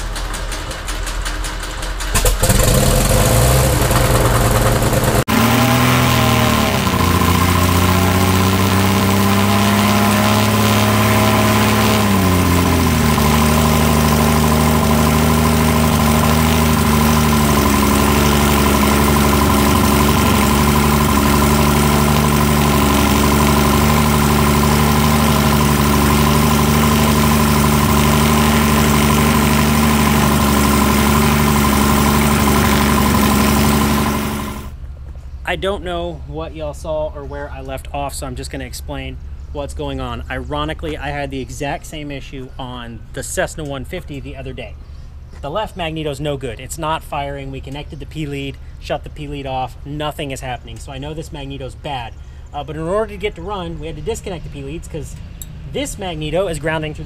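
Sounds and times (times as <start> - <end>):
propeller plane engine running: 0.0 - 35.4, 50.6 - 57.0.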